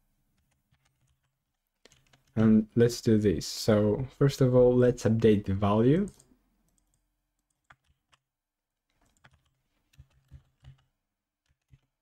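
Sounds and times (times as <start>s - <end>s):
computer keyboard keystrokes: 0.4s - 2.4s, 6.1s - 8.2s, 8.9s - 12.0s.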